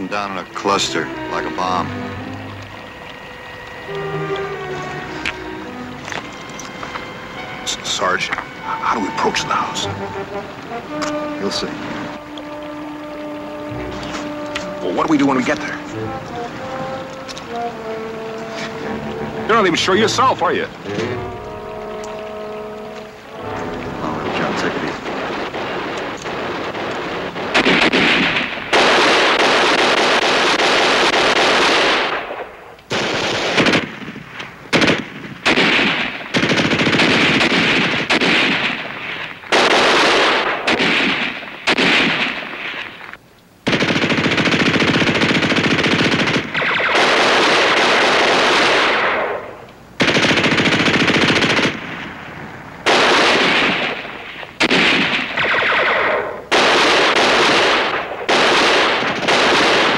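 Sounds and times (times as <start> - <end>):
machine-gun fire: 25.0 - 43.0, 43.6 - 52.2, 52.8 - 59.9.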